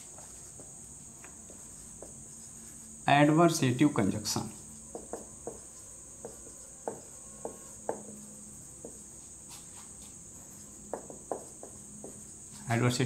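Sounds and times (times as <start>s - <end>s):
marker pen scratching on whiteboard: 0.0s - 3.0s, 4.2s - 13.0s
steady high-pitched hiss: 0.0s - 13.0s.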